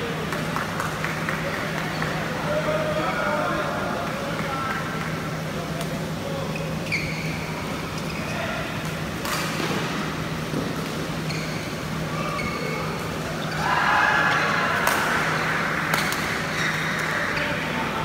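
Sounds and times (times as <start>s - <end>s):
shoes squeaking on court: 6.4s - 13.6s.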